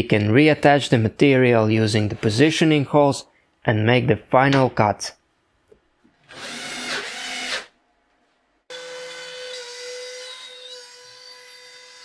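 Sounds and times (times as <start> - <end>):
router whining: 6.2 - 7.7
cordless drill driving a screw: 6.3 - 7.7.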